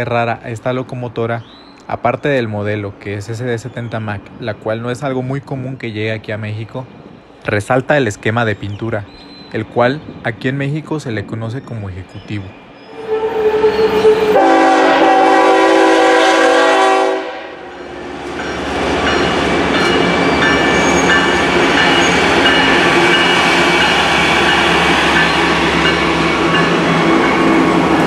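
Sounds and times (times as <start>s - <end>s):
train wheels rolling on rail: 0.3s - 28.0s
locomotive air horn: 12.9s - 17.8s.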